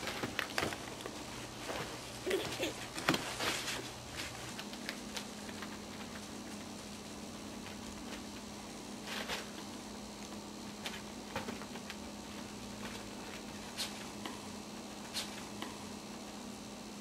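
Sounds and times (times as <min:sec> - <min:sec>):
puppy paws pattering on sheeting: 0:00.0 - 0:08.4
steady low hum: 0:00.0 - 0:17.0.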